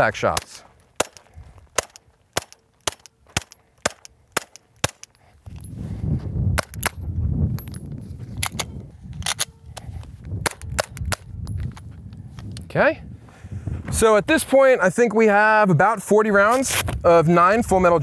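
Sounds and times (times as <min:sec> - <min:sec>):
suppressed pistol shots: 0:01.0 - 0:05.1
wind rumble on microphone: 0:05.4 - 0:14.6, 0:16.6 - 0:18.0.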